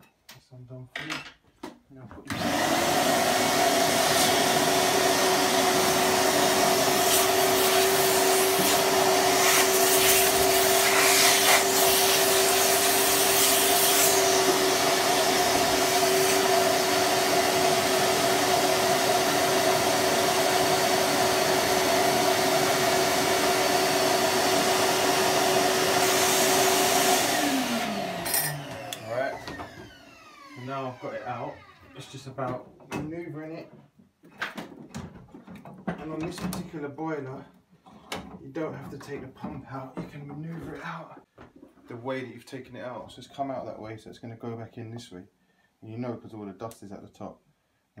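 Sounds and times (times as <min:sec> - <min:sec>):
vacuum cleaner running: 0:02.3 - 0:32.2.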